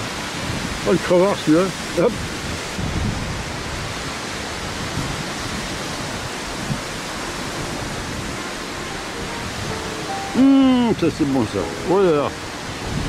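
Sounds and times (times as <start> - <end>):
steady rushing noise: 2.4 - 13.0.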